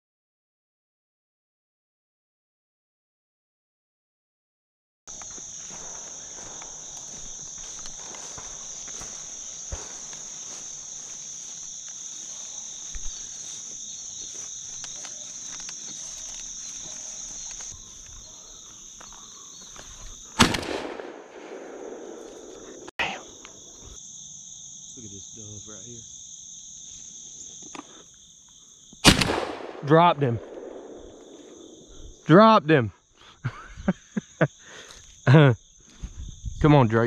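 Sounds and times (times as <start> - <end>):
insects droning: 5.1 - 37.0
shotgun blast with echo: 20.4 - 22.8, 29.0 - 31.5.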